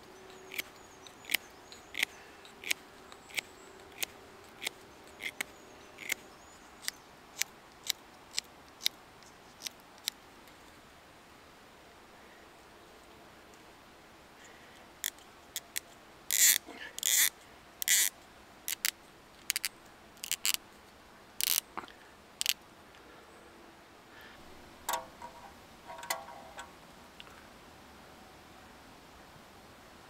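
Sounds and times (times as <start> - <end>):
knife scraping wood: 0.4 - 3.4
metallic clinks of wire handle: 24.9 - 26.7.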